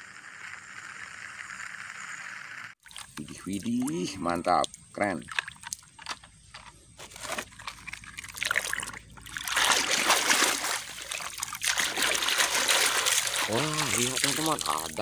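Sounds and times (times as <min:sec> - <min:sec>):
water splashing over toy: 0:02.8 - 0:06.7, 0:07.3 - 0:15.0.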